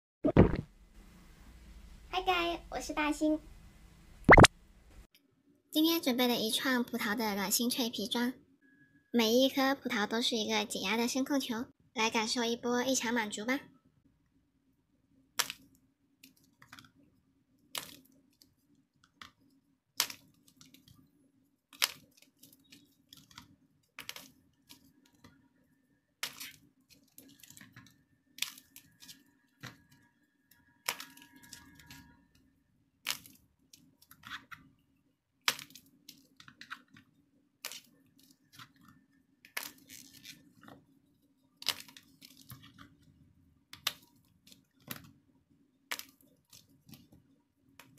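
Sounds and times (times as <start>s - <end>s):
clay balls cracking: 15.3s - 17.0s, 17.6s - 25.4s, 26.0s - 32.1s, 33.0s - 34.7s, 35.4s - 40.8s, 41.5s - 47.9s.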